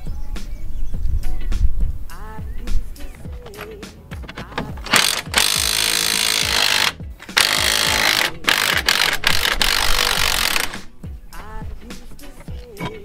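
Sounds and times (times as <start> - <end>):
power tool running in bursts: 4.9 - 10.8.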